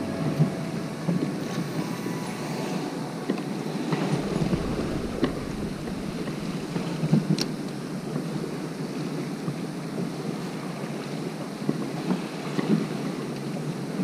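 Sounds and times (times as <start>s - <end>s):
wind on microphone: 0.0s - 13.0s
water lapping against kayak hull: 3.6s - 14.0s.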